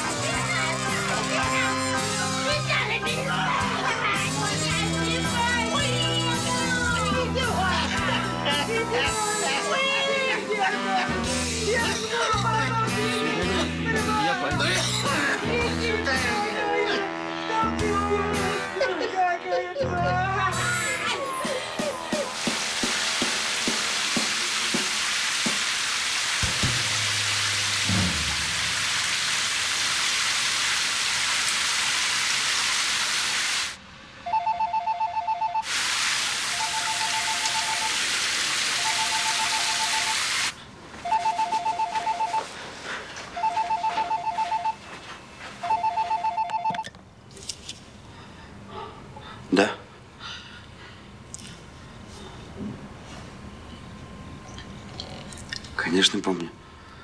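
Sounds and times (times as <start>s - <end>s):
loud steady hiss: 22.1s - 33.8s, 35.6s - 40.8s
cordless phone ringing: 34.3s - 35.7s, 36.6s - 38.0s, 38.8s - 40.2s, 41.0s - 42.5s, 43.4s - 44.9s, 45.6s - 47.0s.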